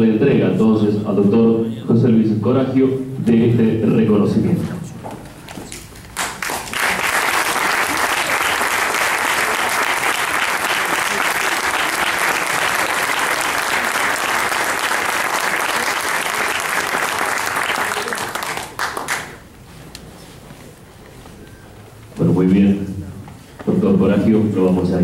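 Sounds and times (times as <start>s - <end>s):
audience applauding: 6.1s - 19.5s.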